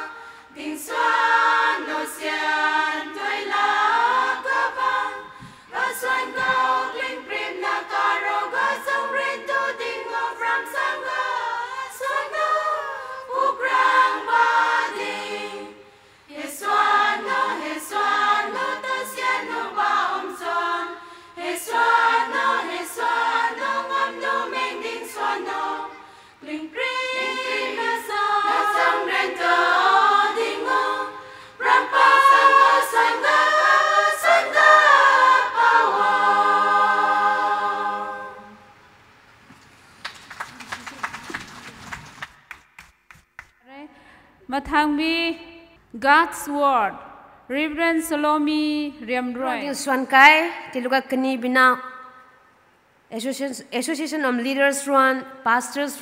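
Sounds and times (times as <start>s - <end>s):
women's choir singing: 0.0s - 38.8s.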